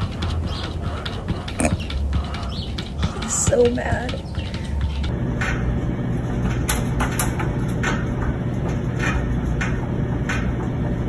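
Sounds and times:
steady low hum: 0.0s - 11.0s
knocks and clicks in metal drum: 5.1s - 11.0s.

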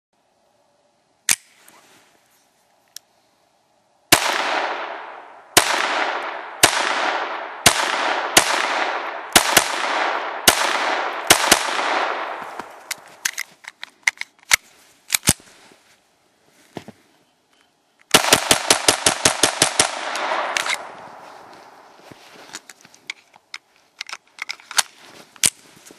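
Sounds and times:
pistol shots with long echo: 4.1s - 12.5s, 18.1s - 21.0s.

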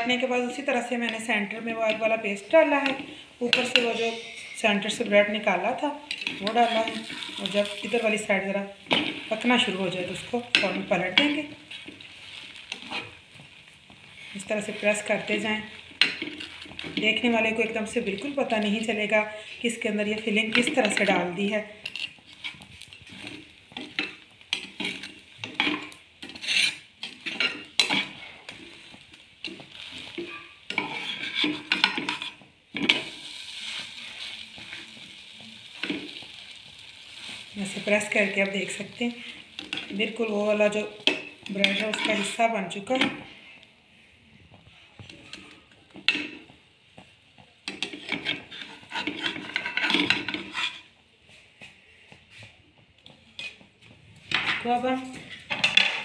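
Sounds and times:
spatula scraping a metal pan: 2.8s - 13.2s, 14.1s - 18.9s, 20.2s - 35.0s, 37.1s - 43.4s, 47.7s - 50.9s.

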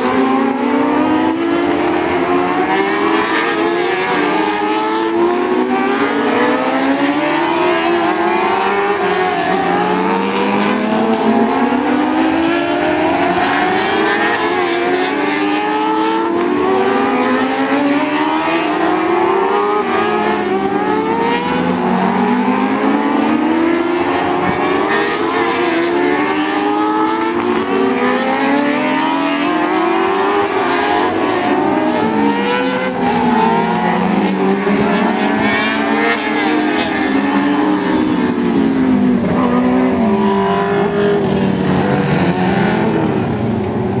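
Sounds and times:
race car engines revving: 0.0s - 44.0s.

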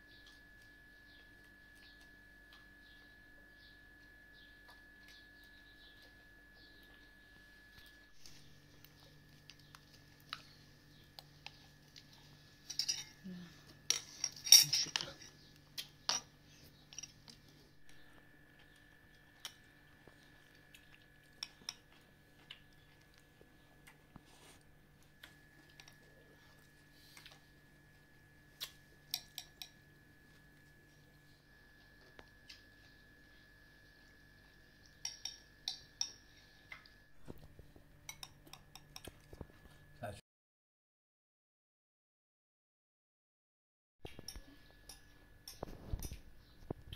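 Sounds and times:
spoons clinking against bowls: 12.6s - 13.2s, 13.9s - 15.4s, 29.1s - 29.8s, 35.0s - 36.3s, 38.1s - 39.1s.

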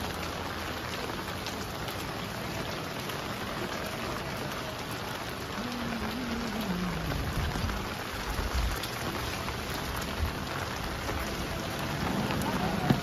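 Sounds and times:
rain pattering: 0.0s - 13.0s.

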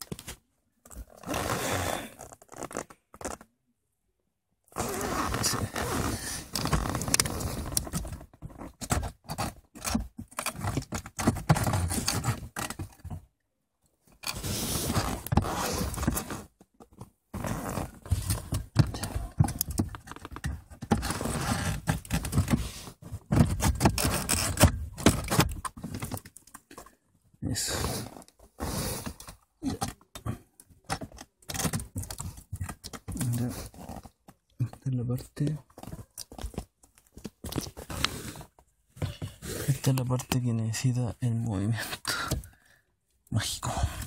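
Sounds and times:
scraping and rubbing of plastic: 4.7s - 13.3s, 14.2s - 27.0s, 27.6s - 34.8s.

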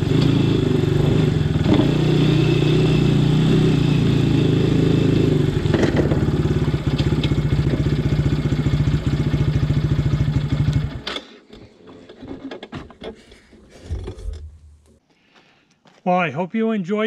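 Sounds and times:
quad engine idling: 3.4s - 11.0s.

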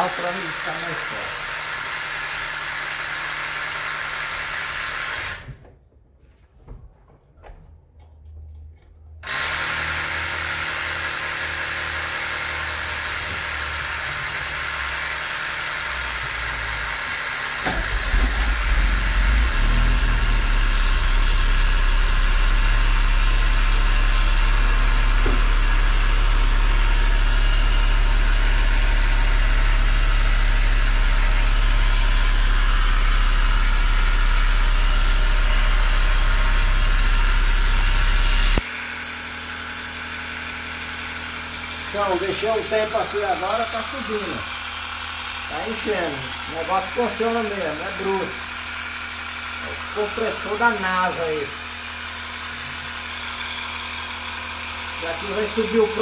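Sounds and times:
portable tyre compressor running: 0.0s - 5.6s, 9.2s - 56.0s
car engine starting and idling: 16.0s - 38.6s.

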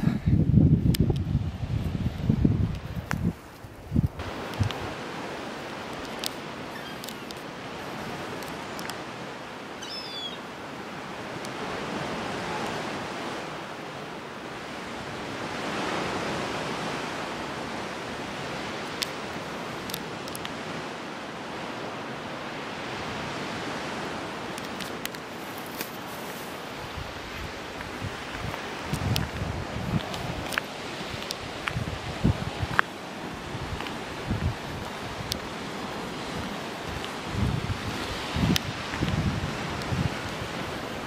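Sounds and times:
sea surf washing: 0.0s - 41.0s.

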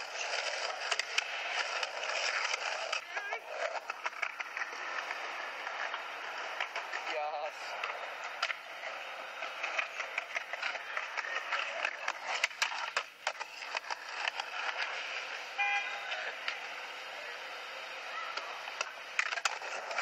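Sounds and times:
short horn-like tone: 15.6s - 16.0s.

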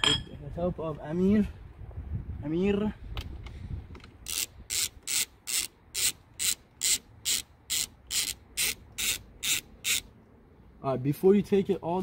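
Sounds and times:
socket ratchet clicking: 4.0s - 10.1s.

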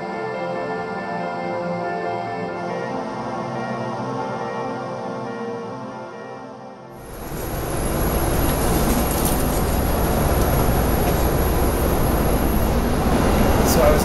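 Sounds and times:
music: 0.0s - 7.6s
airliner cabin noise: 7.0s - 14.0s
thin high whine: 7.0s - 14.0s.

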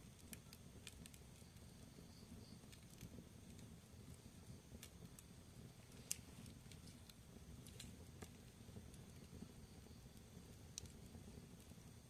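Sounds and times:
logs crackling in fireplace: 0.0s - 12.0s
low flame noise: 0.0s - 12.0s
sharp fire pops: 0.0s - 12.0s.

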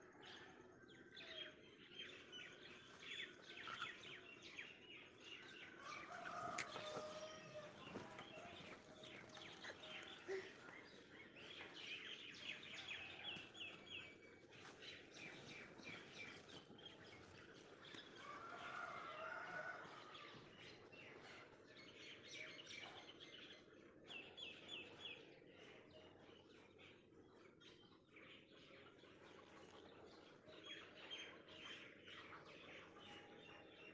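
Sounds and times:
songbirds chirping: 0.0s - 33.9s.

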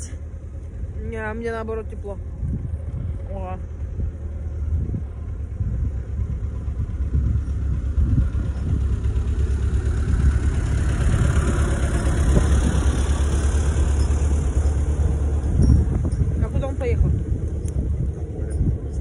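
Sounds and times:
tractor engine rumbling: 0.0s - 19.0s.

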